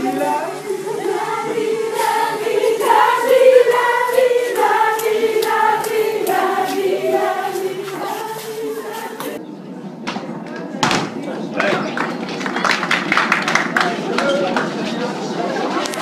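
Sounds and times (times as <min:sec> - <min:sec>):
young voices singing in unison: 0:00.0 - 0:09.4.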